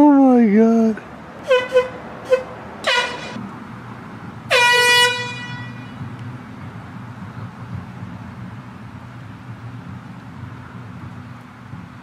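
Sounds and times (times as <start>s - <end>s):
air horn blasts: 1.4s - 3.4s, 4.5s - 6.0s.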